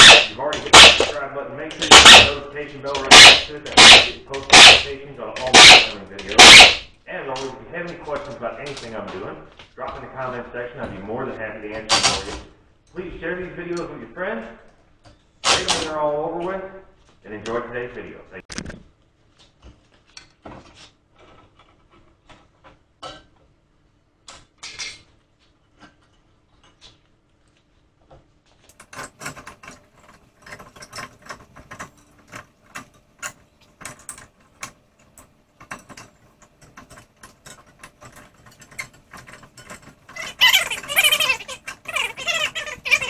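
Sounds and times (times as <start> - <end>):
hand ratchet clicking: 0.0 - 1.2, 3.0 - 6.9
tools knocking: 0.0 - 1.2, 1.8 - 6.9.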